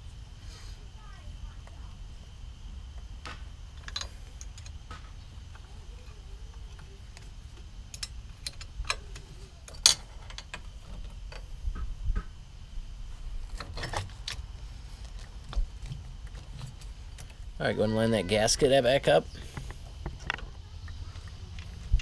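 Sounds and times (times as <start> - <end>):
metallic clicks of tools and parts: 3.8 - 4.8, 7.9 - 11.5.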